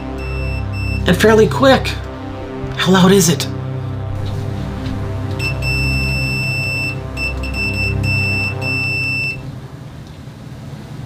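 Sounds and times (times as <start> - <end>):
multimeter continuity beep: 0.0 - 1.1, 5.4 - 9.5
background music: 0.0 - 10.0.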